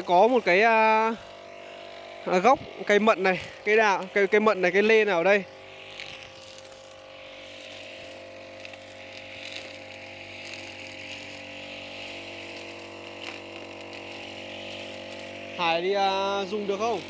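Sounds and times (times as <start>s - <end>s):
brush cutter engine running: 0.0s - 17.0s.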